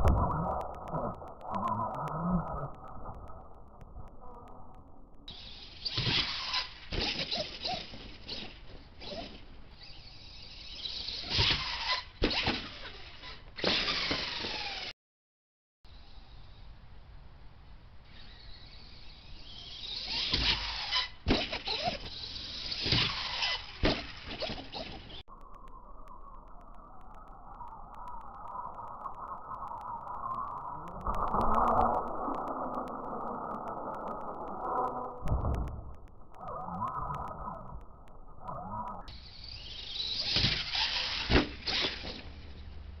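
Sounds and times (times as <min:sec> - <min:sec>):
rc truck motor whining: 0:05.3 - 0:14.9, 0:18.0 - 0:25.3, 0:28.5 - 0:35.8, 0:36.4 - 0:43.0.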